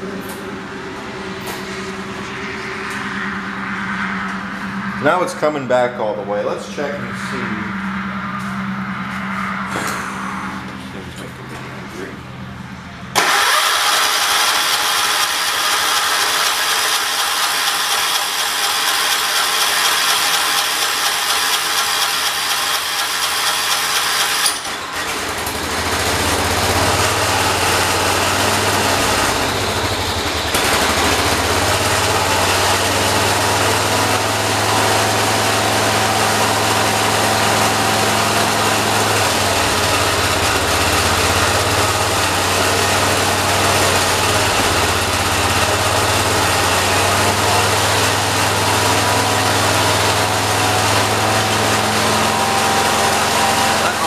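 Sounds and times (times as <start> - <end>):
garden tractor engine running: 13.1 - 54.0.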